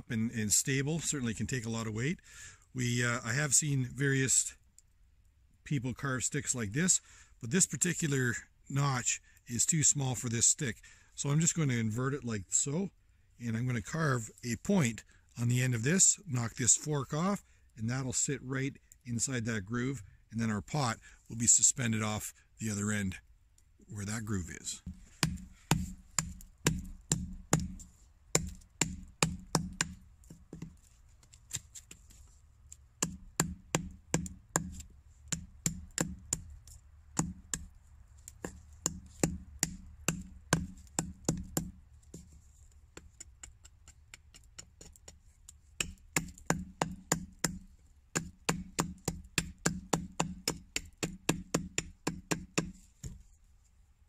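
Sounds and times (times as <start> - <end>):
machete chopping wood: 24.9 - 30.0, 33.0 - 36.5, 38.4 - 41.8, 45.8 - 47.6, 48.2 - 53.2.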